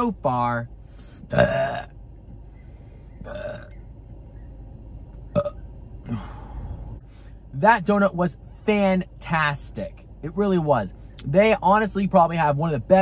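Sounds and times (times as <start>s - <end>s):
man burping: 1.2s - 1.9s, 3.2s - 3.8s, 5.3s - 6.5s.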